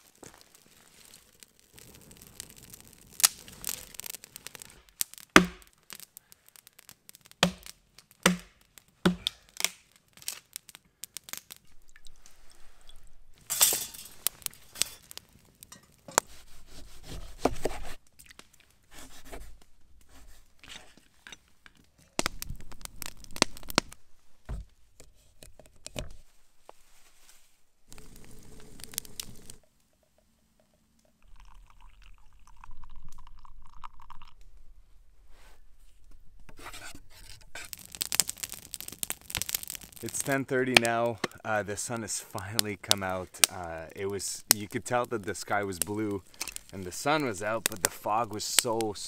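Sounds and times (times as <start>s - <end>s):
sharp knocks: 5.4s - 5.7s
scraping of utensils: 13.5s - 14.2s
packaging tearing and crinkling: 37.5s - 40.1s.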